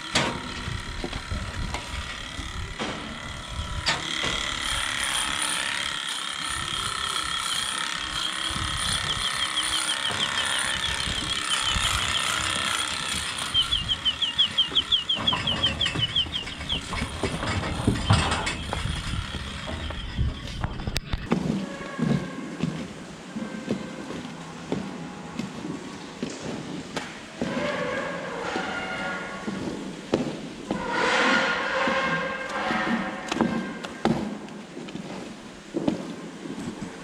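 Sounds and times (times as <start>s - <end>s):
electric clippers whining: 0.0s - 21.2s.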